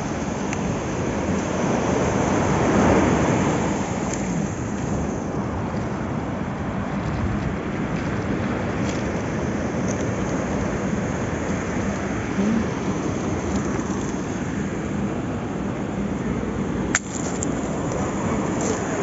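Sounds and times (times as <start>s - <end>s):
surf on pebble beach: 0.0s - 19.0s
wind roaring on microphone: 0.0s - 19.0s.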